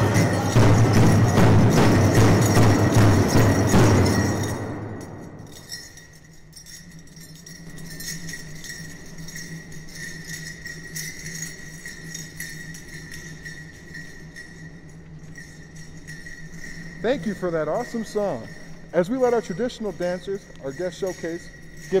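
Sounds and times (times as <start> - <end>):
hand drum beating: 0.0 - 4.7
low electrical hum: 0.0 - 22.0
sleigh bells jingling: 0.0 - 22.0.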